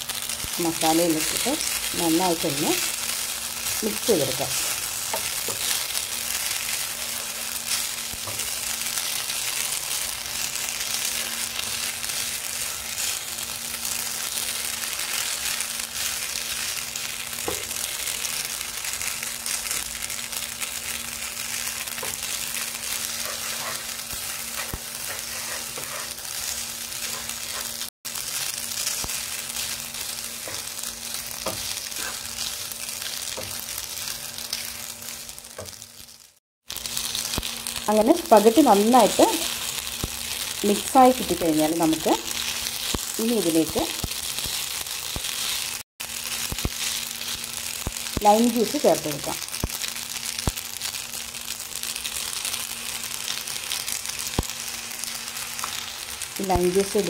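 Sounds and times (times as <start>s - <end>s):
food sizzling in a pan: 0.0s - 57.0s
spatula scraping a pan: 23.1s - 27.8s, 31.4s - 32.4s.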